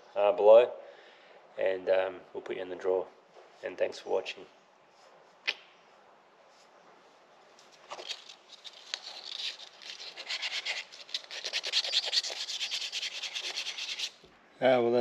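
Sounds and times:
sandpaper rubbing wood: 8.1s - 14.2s.

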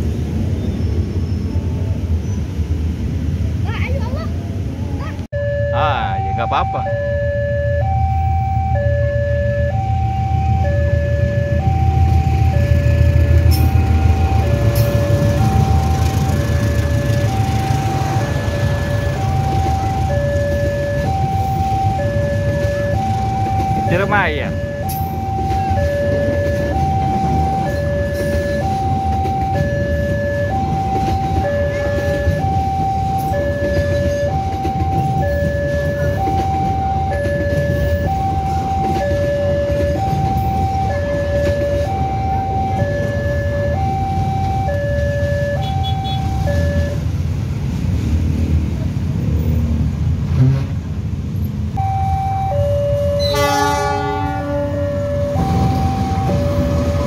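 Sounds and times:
passenger train rumbling past: 0.0s - 57.0s
level crossing alarm two tones: 5.3s - 47.1s, 51.8s - 57.0s
locomotive horn blast: 45.4s - 47.0s, 52.9s - 57.0s.

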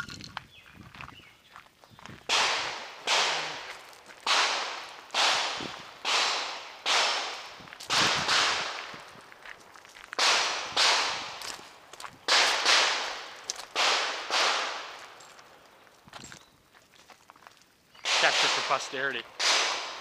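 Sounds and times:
gunshots echoing: 2.3s - 9.1s, 10.2s - 11.4s, 12.3s - 15.2s, 18.0s - 20.0s.

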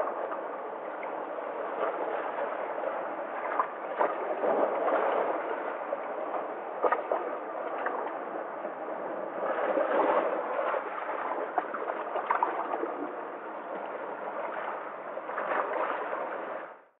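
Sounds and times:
surf rushing among rocks: 0.0s - 16.8s
small water splashes: 3.3s - 8.3s, 9.4s - 13.2s.

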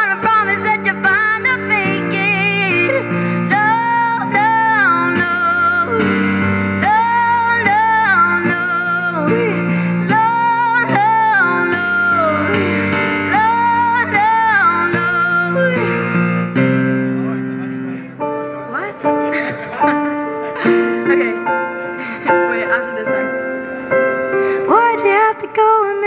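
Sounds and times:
woman singing into microphone: 0.0s - 16.1s, 24.4s - 26.0s
amplified instrumental backing: 0.0s - 26.0s.

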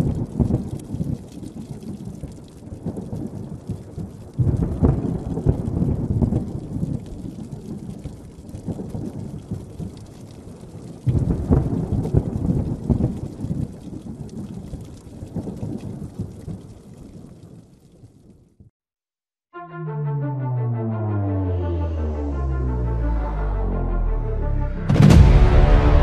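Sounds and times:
thunder rumbling: 0.0s - 17.7s
steady rain: 0.0s - 18.7s.

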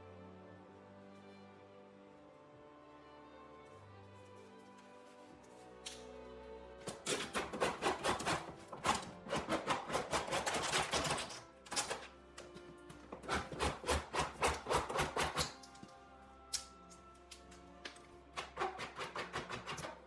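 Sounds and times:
file rasping on laminate edge: 7.2s - 11.2s, 13.2s - 15.5s.

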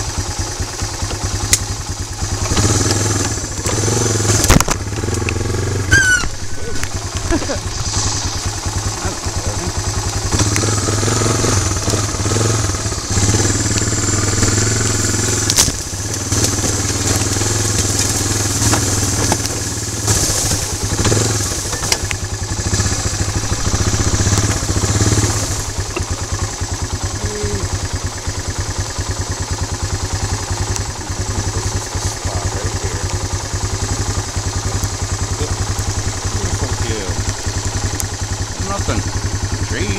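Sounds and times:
atv engine running: 0.0s - 39.9s
vegetation swishing against machine: 7.4s - 9.7s, 15.6s - 22.0s.

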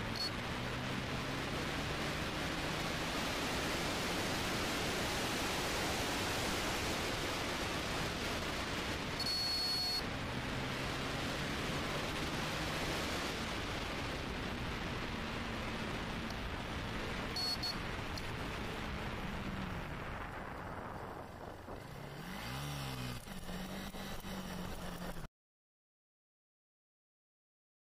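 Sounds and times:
motorcycle engine low hum: 0.0s - 25.3s
short high beep: 0.1s - 0.4s, 9.2s - 10.0s, 17.4s - 17.8s
wind rushing over microphone: 10.2s - 23.2s.

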